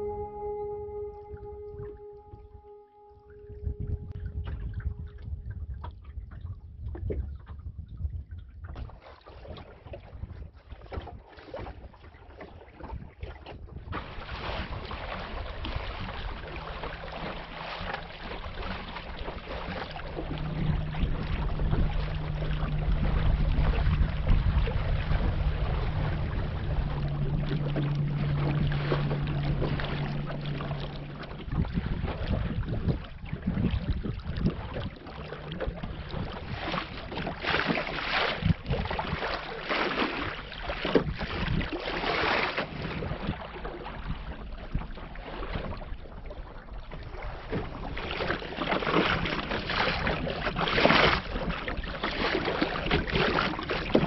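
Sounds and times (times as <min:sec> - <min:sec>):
steady low hum: 0:00.0 - 0:06.1, 0:15.4 - 0:40.8
wind buffeting microphone: 0:03.5 - 0:11.2, 0:12.8 - 0:45.9
water slapping against hull: 0:03.5 - 0:54.0.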